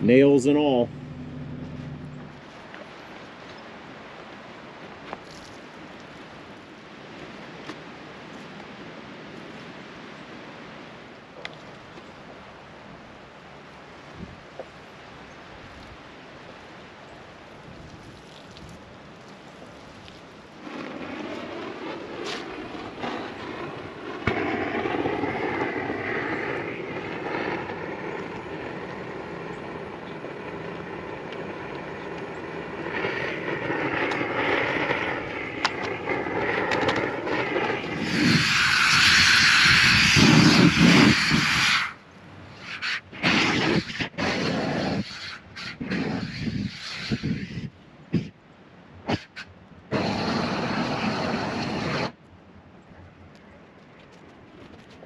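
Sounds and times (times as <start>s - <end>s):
excavator diesel engine working: 0.0s - 2.6s
loud rushing noise: 0.0s - 2.6s, 32.7s - 42.0s.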